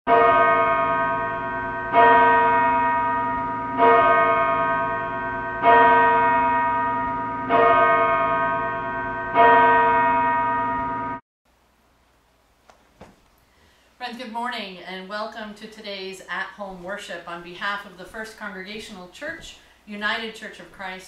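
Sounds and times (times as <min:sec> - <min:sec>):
church bell tolling: 0:00.1 - 0:11.2.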